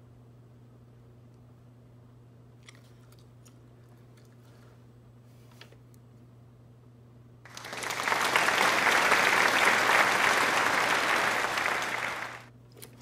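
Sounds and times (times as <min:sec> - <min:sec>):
applause: 0:07.5 - 0:12.5.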